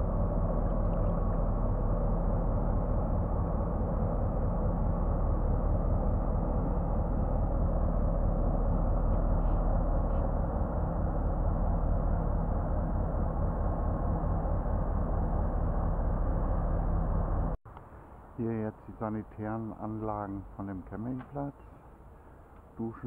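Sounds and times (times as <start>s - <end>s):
barge diesel engine drone: 0.0s - 17.6s.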